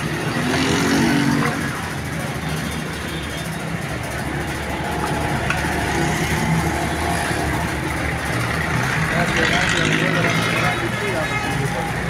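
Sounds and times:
traffic engines humming: 0.0 - 12.0.

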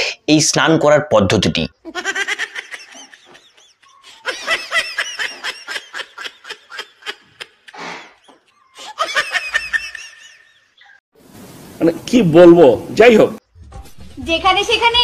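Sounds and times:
woman laughing: 1.9 - 11.0.

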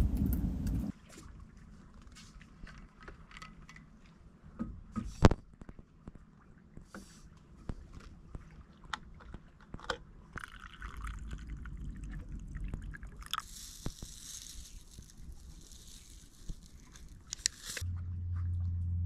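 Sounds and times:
rustling with low rumble: 0.0 - 3.0, 10.8 - 19.0
cap clicks and scrapes: 15.6 - 17.8.

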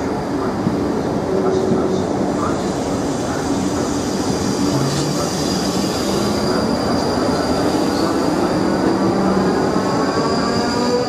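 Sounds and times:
high-pitched wheel squeal: 9.3 - 11.0.

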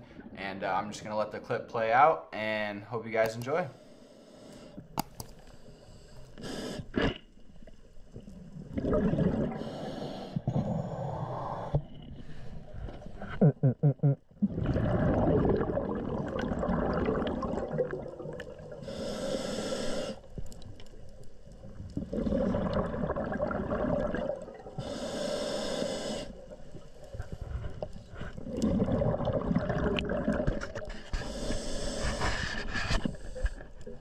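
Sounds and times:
diver inhaling hiss: 3.7 - 4.8, 5.5 - 7.0, 9.5 - 12.7, 18.8 - 20.3, 24.8 - 26.5, 30.8 - 33.7
gurgling exhaled bubbles: 6.9 - 19.4, 21.5 - 32.0.

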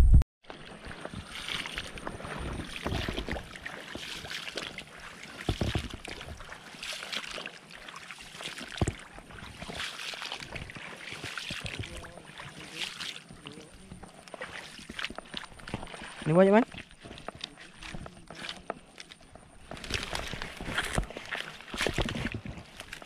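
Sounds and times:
low thumps: 0.0 - 0.2
footsteps wading through water: 0.4 - 23.0.

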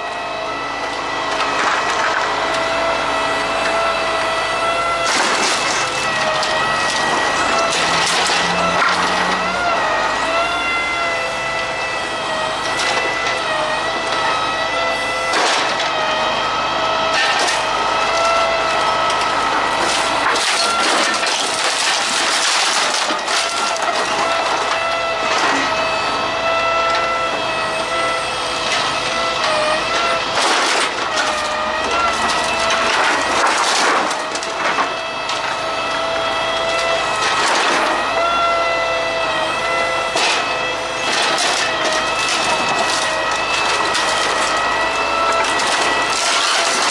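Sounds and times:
engine and hydraulic pump whine: 0.0 - 46.9
wooden pallets cracking and splintering: 1.0 - 46.9.

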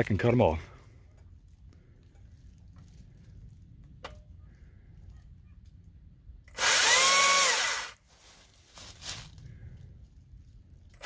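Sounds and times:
electric chainsaw motor whine: 6.5 - 8.0.

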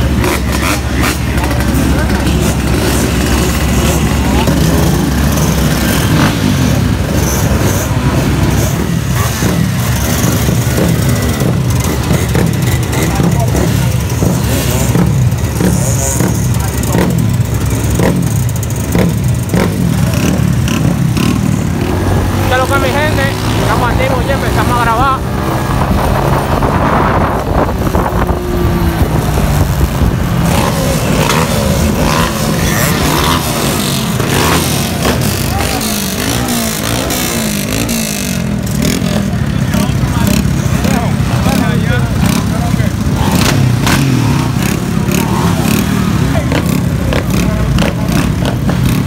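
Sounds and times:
people talking: 0.0 - 5.4, 12.7 - 18.1, 22.2 - 29.7, 30.5 - 49.0
motorcycle engines running: 0.0 - 49.0
wind rushing over microphone: 25.2 - 33.0.

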